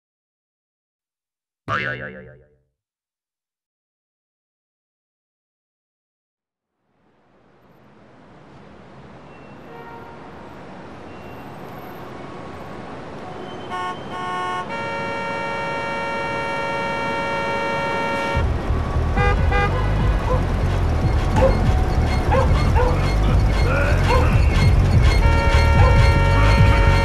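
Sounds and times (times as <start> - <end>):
low traffic rumble: 7.0 - 27.0
short honks and squeaks: 9.2 - 10.2, 13.4 - 18.5, 19.2 - 27.0
car horn honking: 9.4 - 10.3, 13.3 - 27.0.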